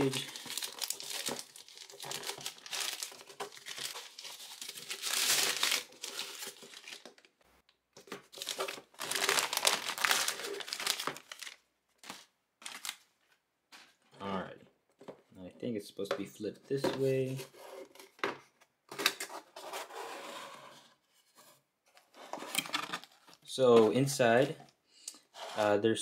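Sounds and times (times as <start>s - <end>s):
plastic mailer bag crinkling: 0.0s - 7.3s, 8.3s - 13.0s.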